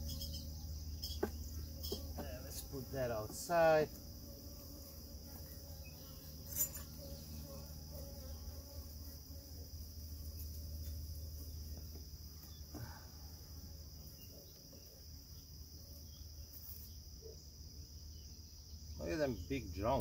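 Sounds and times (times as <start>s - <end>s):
bees buzzing: 0.0s - 15.0s
high insect trill: 0.0s - 20.0s.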